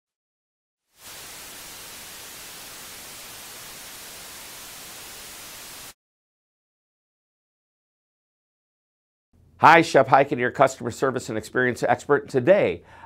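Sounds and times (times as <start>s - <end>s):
television static hiss: 1.0s - 5.9s.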